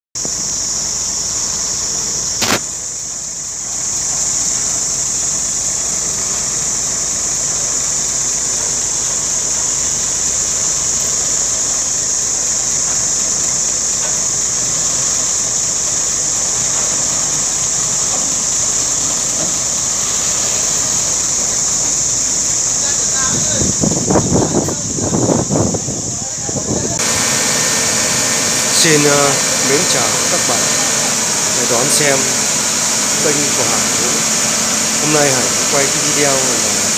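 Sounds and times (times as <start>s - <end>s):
steady high-pitched hiss: 0.2s - 36.9s
sharp click: 2.4s - 2.8s
diesel truck engine running: 5.7s - 36.9s.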